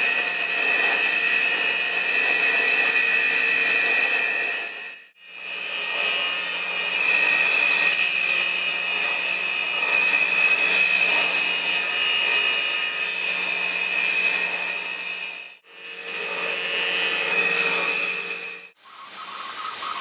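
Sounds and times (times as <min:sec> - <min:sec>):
machine high whine: 0:00.0 - 0:20.0
sanding wheel grinding rubber: 0:18.7 - 0:20.0.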